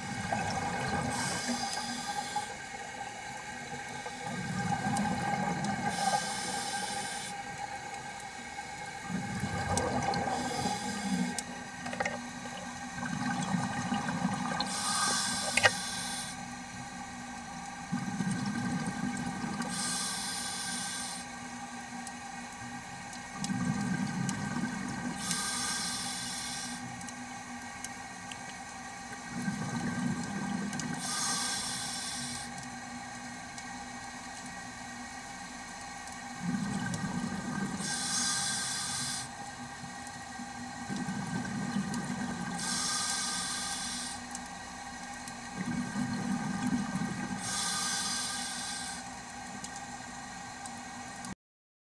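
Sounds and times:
exhaled air bubbling: 0.0s - 50.4s
faint steady hum: 0.0s - 51.4s
regulator inhalation hiss: 1.1s - 2.6s, 5.9s - 7.4s, 10.3s - 11.4s, 14.7s - 16.4s, 19.7s - 21.3s, 25.2s - 26.9s, 31.0s - 32.5s, 37.8s - 39.3s, 42.6s - 44.2s, 47.4s - 49.1s.

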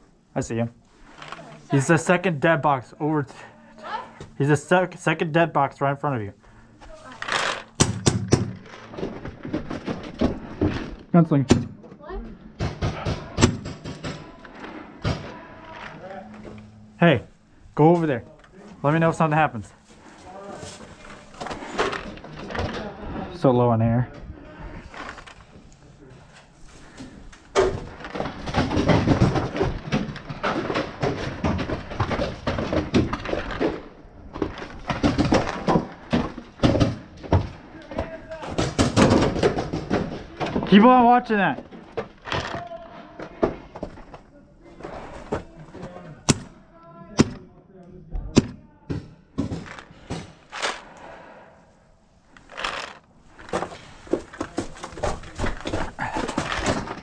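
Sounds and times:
gear rustling: 52.3s - 57.0s.

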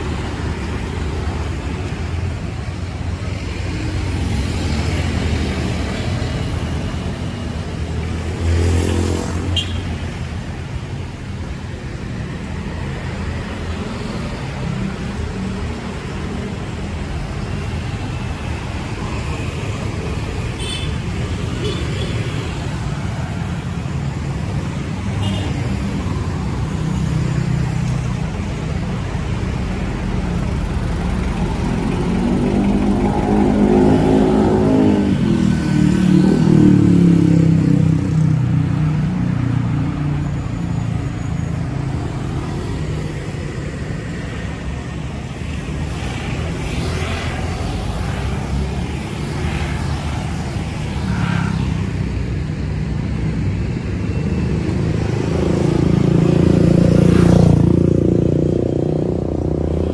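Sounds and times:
road traffic: 0.0s - 59.9s.

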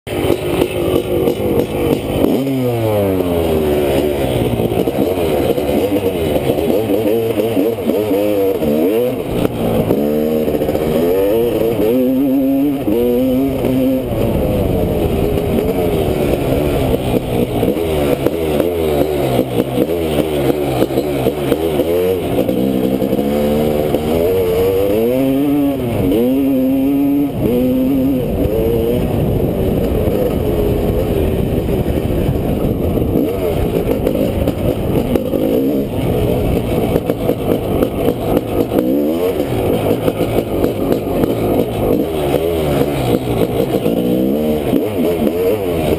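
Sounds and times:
motorcycle engine revving through gears: 0.0s - 45.9s.

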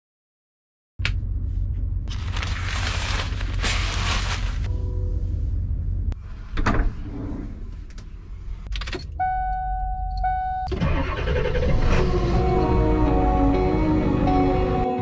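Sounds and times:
engine cranking and rumbling: 1.0s - 14.4s
dashboard chime: 9.2s - 10.7s.

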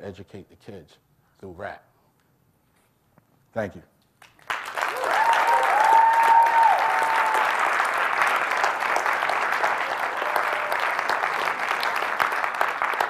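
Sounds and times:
audience applauding: 4.2s - 13.0s
long held whoop: 4.9s - 7.7s.

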